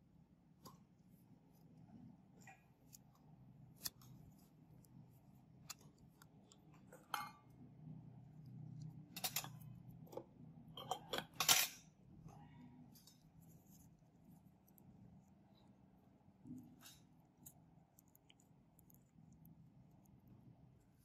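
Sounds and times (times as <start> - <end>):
faint low hum: 0.0 - 21.0
tools clicking and tapping: 9.1 - 9.8.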